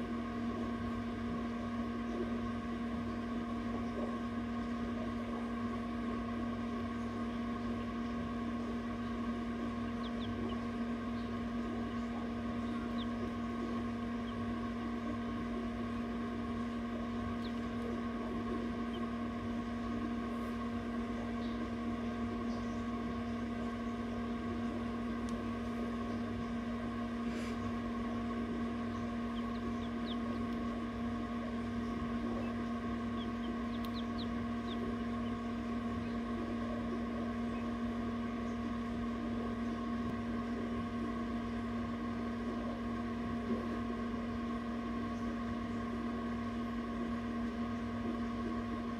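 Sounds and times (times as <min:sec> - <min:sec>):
incubator electrical hum: 0:00.0 - 0:48.9
chicks peeping: 0:06.6 - 0:26.6, 0:27.3 - 0:39.8.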